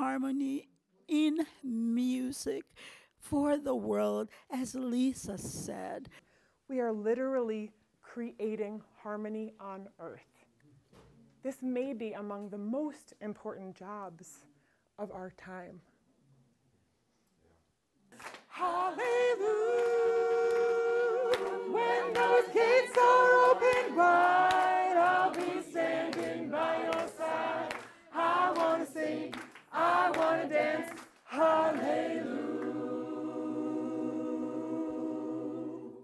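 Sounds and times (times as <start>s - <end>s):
chorus singing a cappella: 18.5s - 36.0s.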